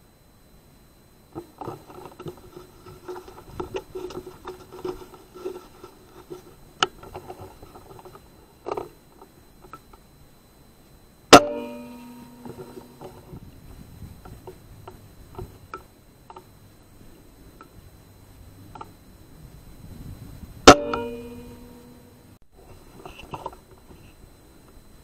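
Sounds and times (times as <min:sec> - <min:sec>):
rustling: 0:01.4 - 0:10.1.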